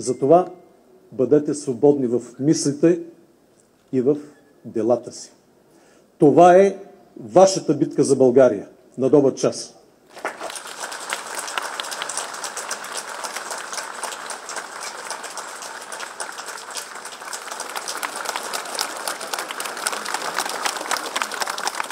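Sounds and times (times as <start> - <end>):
crowd applauding: 10.1 - 21.9.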